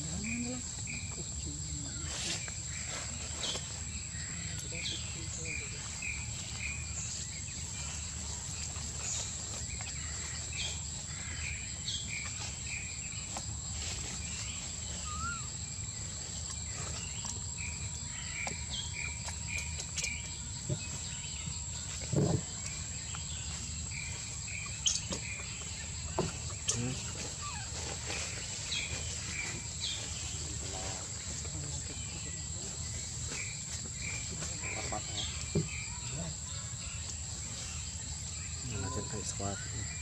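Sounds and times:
insect drone: 0.0s - 40.0s
bird chirps: 14.2s - 30.9s.

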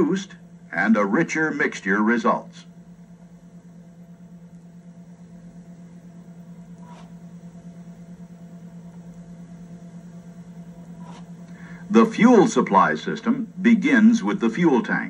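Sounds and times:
low playback hum: 0.0s - 15.0s.

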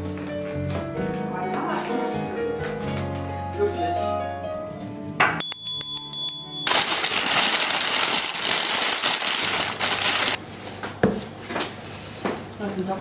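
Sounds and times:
handbell ringing: 5.4s - 6.8s
loud even rustling: 6.7s - 10.4s.

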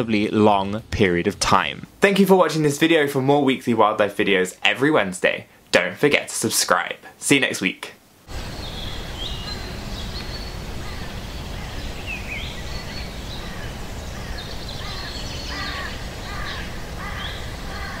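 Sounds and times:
birds chirping and calling: 8.4s - 18.0s.

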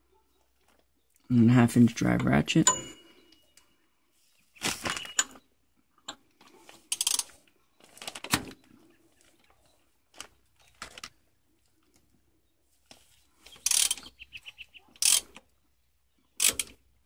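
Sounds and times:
metal tools clinking and rattling: 2.1s - 3.4s, 4.8s - 5.4s.

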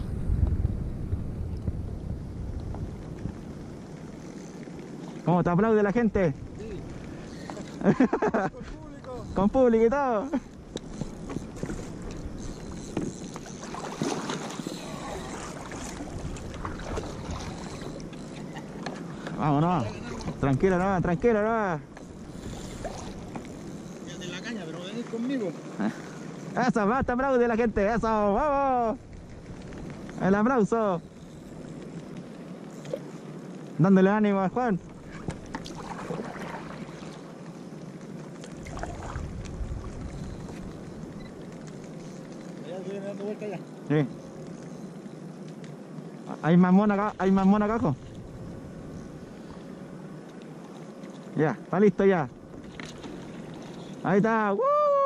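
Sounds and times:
water splashing against kayak: 10.4s - 27.2s, 34.7s - 43.4s, 52.3s - 54.2s.

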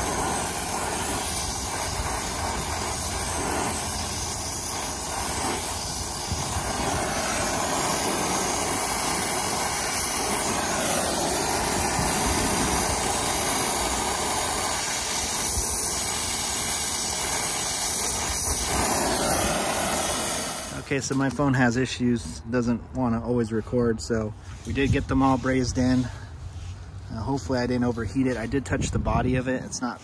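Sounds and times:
torch flame hissing: 0.0s - 21.4s.

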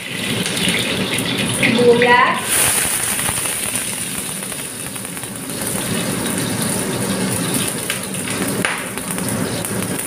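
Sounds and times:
garlic and onion sizzling in oil: 0.0s - 10.0s.

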